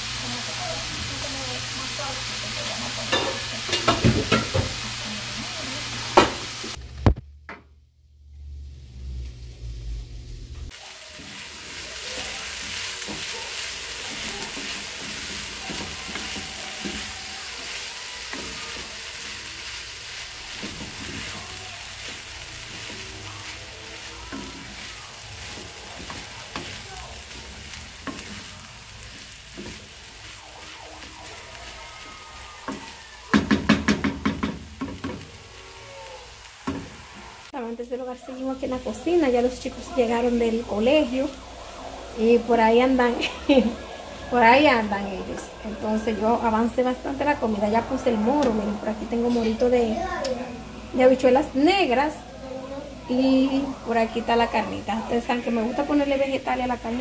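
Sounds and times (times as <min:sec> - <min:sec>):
meat sizzling in a pan: 0:00.0 - 0:06.8, 0:10.7 - 0:57.0
spoon scraping a pan: 0:03.0 - 0:04.8, 0:20.5 - 0:31.8.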